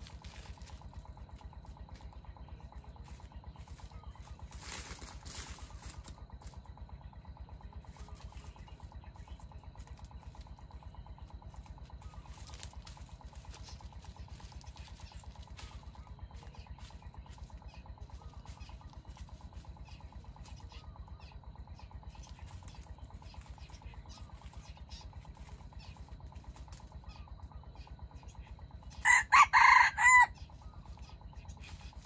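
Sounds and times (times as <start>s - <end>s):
small engine idling: 0.0s - 32.0s.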